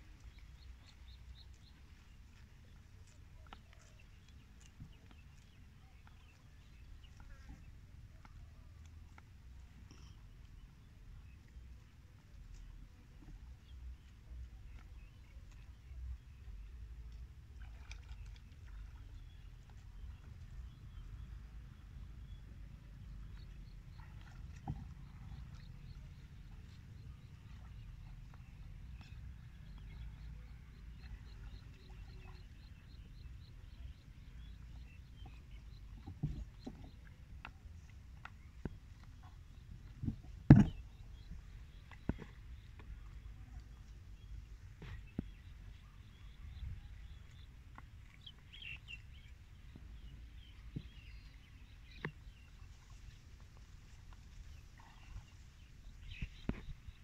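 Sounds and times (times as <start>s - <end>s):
thump: 40.4s - 40.8s.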